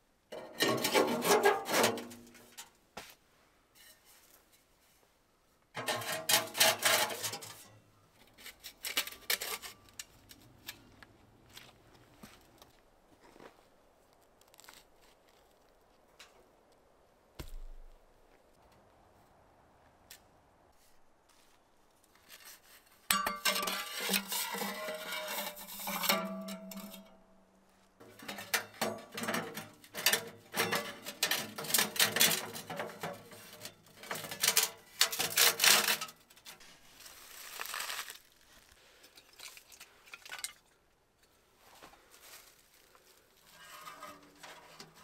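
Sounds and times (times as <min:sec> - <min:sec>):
metal pipes scraping and clanking: 0:00.3 - 0:02.7, 0:05.8 - 0:10.9, 0:23.1 - 0:27.2, 0:28.0 - 0:36.7, 0:43.4 - 0:45.0
soft rustling: 0:03.0 - 0:05.3, 0:20.1 - 0:23.1, 0:36.4 - 0:39.2, 0:41.2 - 0:45.0.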